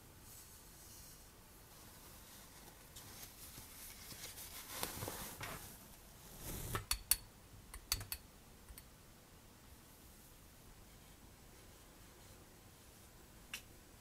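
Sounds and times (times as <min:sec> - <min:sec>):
fabric rustling: 0:00.2 - 0:06.8.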